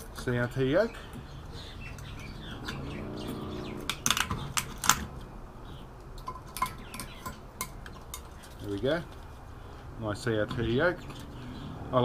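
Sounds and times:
handling clicks and light knocks: 3.8s - 5.3s, 6.0s - 9.5s.

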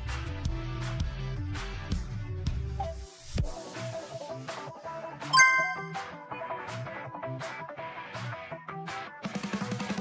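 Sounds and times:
background music with a beat: 5.4s - 6.1s.

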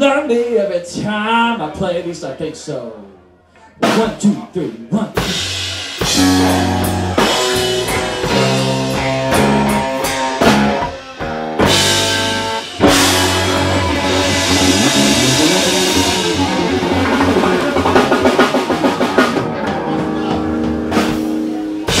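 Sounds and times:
blues rock band playing: 5.2s - 22.0s
drum and cymbal hits: 5.2s - 22.0s.

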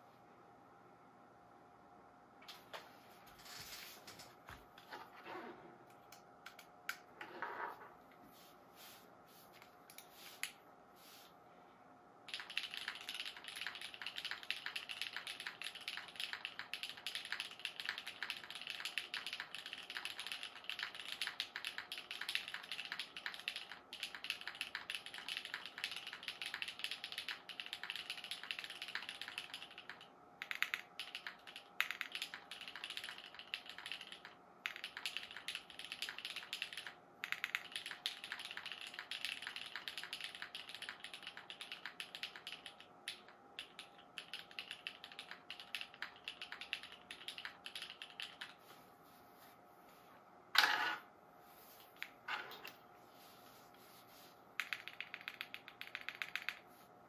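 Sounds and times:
mechanical keyboard typing: 12.3s - 48.6s, 54.6s - 56.6s.

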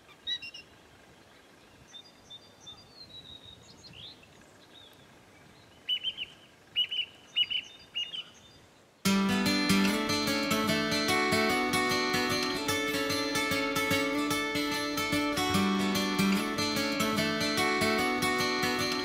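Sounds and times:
song thrush singing: 0.0s - 19.0s
guitar music: 9.1s - 19.0s.

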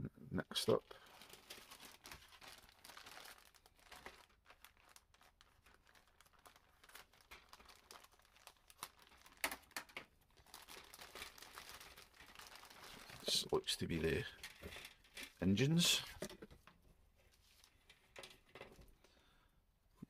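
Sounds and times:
plastic bag crinkling: 0.8s - 16.6s.

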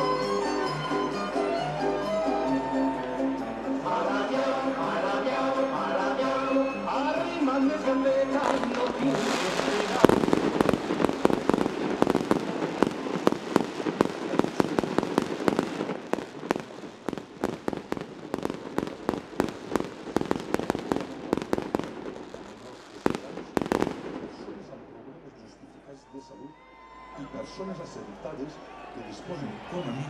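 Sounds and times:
firecrackers cracking: 8.3s - 25.1s.

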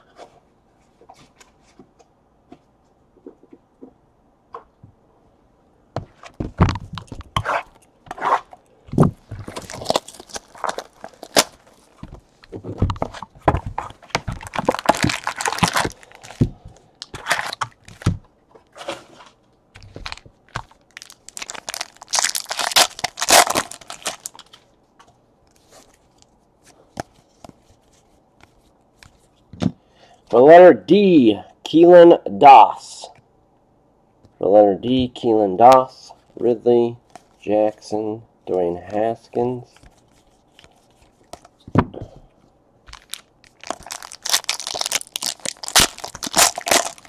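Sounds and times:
foil wrappers crinkling and tearing: 9.3s - 12.0s, 13.8s - 18.0s, 19.8s - 24.6s, 42.9s - 47.0s.

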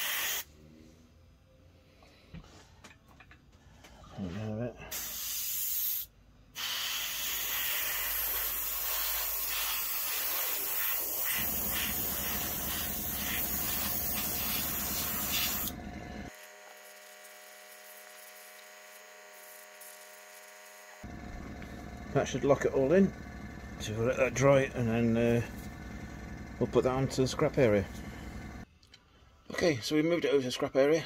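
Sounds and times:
airbrush spraying hiss: 0.0s - 0.5s, 4.9s - 15.8s
electric hum: 11.4s - 28.6s.

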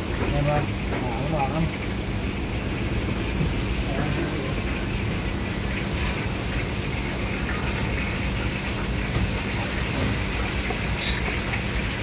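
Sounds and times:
rushing kitchen background noise: 0.0s - 12.0s.

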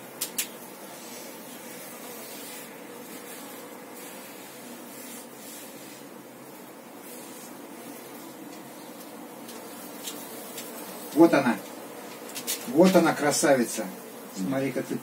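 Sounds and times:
honeybees humming: 0.0s - 15.0s
soft hissing rustles: 0.0s - 15.0s.

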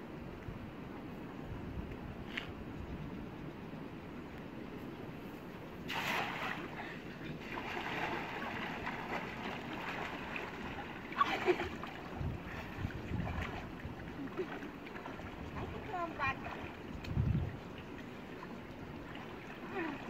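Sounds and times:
water splashing and sloshing: 5.2s - 20.0s.

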